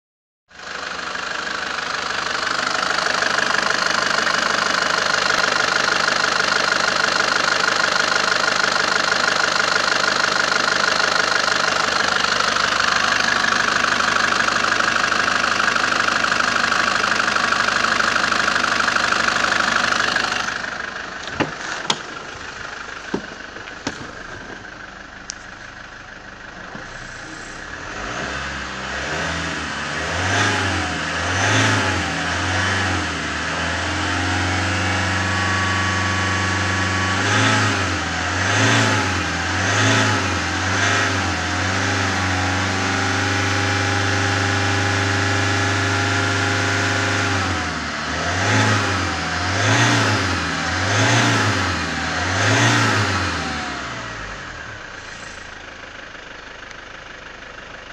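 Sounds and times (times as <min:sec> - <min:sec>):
diesel engine idling: 0:00.5 - 0:57.9
engine revving: 0:10.1 - 0:25.5, 0:26.6 - 0:55.8.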